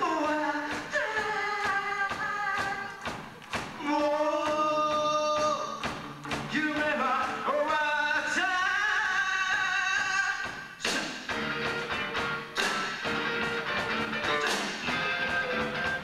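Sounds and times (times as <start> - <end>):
male singer: 0.0 - 3.1, 3.8 - 5.9, 6.5 - 11.3
electric guitars: 10.9 - 16.0
bass guitar: 11.3 - 16.0.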